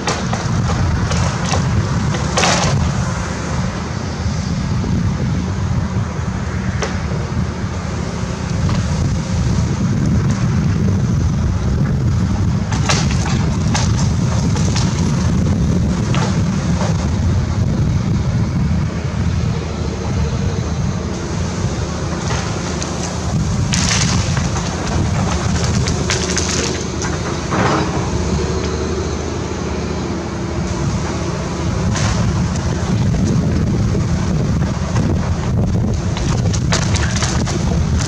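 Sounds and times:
excavator at work: 0.0 - 38.0
wind rumbling on microphone: 0.0 - 38.0
wooden framing cracking: 12.7 - 15.3, 22.2 - 27.9, 35.9 - 38.0.

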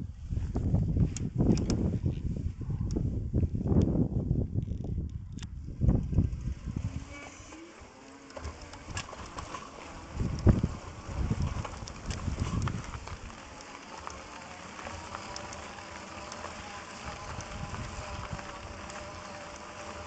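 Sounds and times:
wind buffeting microphone: 0.0 - 7.5, 8.5 - 20.0
electric motor whine: 5.8 - 20.0
tyres crackling over gravel: 8.7 - 20.0.

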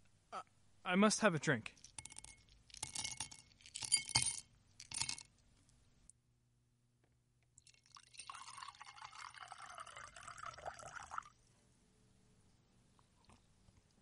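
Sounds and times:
drink pouring into glass: 7.6 - 11.3.

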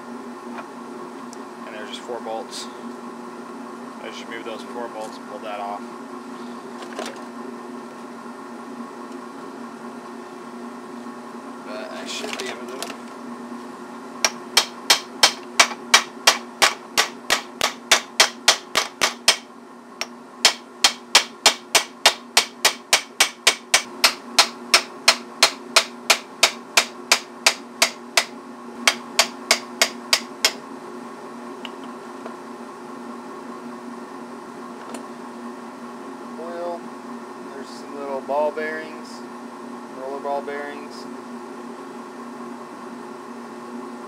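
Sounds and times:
hammer striking metal: 14.3 - 19.5, 20.4 - 28.3, 28.9 - 30.6.

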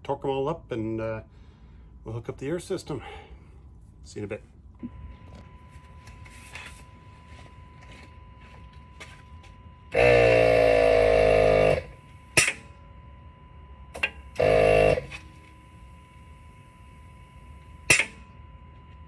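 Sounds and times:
faint high whine: 3.0 - 19.0
buzzing motor: 9.9 - 12.6, 14.0 - 15.4
sharp click: 17.9 - 18.2.

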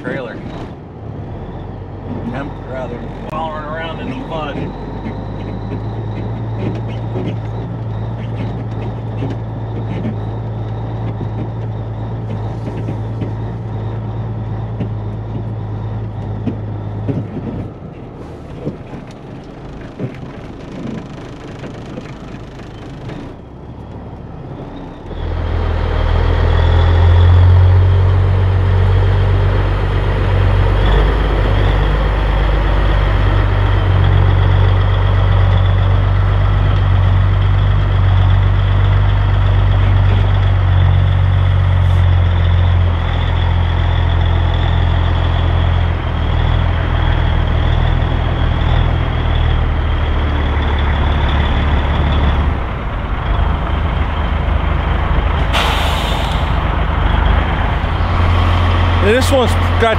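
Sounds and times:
diesel truck engine under load: 0.0 - 59.9.

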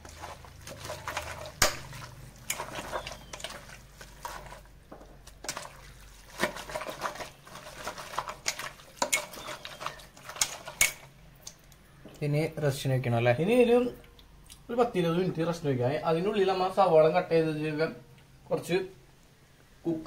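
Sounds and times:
hands squelching meat in marinade: 0.0 - 11.8.

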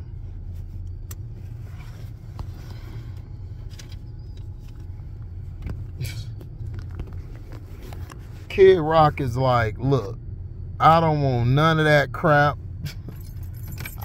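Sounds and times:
car cabin rumble: 0.0 - 14.0
faint clicks and rustles: 0.4 - 8.6.

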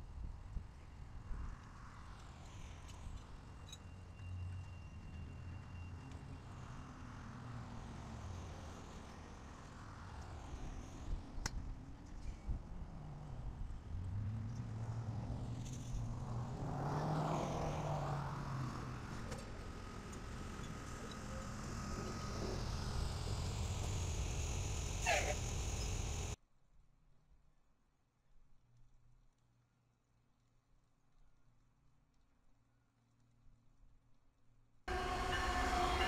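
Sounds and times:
vehicle engine humming: 12.9 - 26.4, 34.9 - 36.0.

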